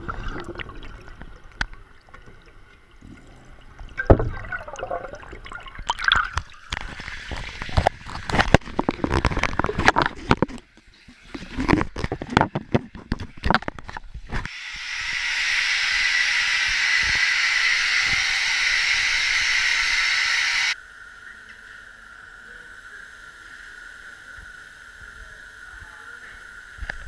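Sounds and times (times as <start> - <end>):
faint steady hum: 0.0 - 11.2, 13.4 - 27.0
compressed gas hissing through valve: 14.5 - 20.8.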